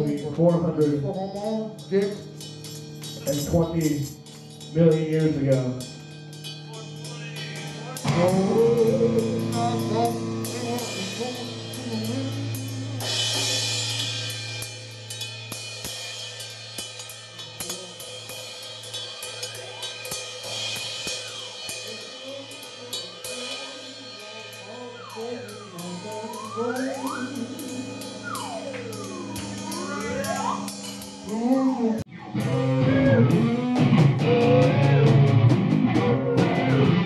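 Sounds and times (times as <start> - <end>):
drum kit played loosely: 0.0 - 37.0
cymbal crash: 1.4 - 32.8
tone swooping in pitch: 19.3 - 22.6, 23.3 - 33.3.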